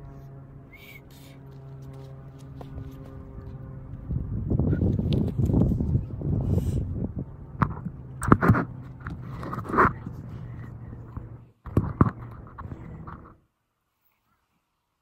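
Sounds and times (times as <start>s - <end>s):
phone microphone handling rumble: 4.0s - 13.4s.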